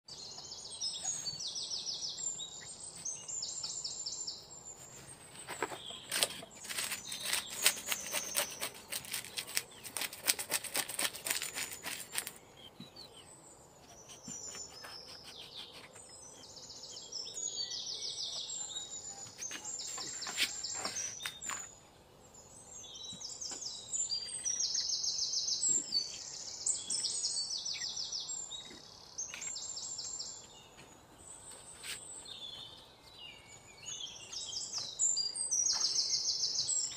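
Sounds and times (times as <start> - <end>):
knife scraping fish scales: 6.1 - 12.4.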